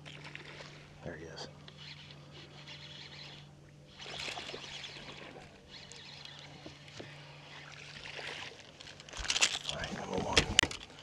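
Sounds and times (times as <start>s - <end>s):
water splashing: 3.9s - 10.0s.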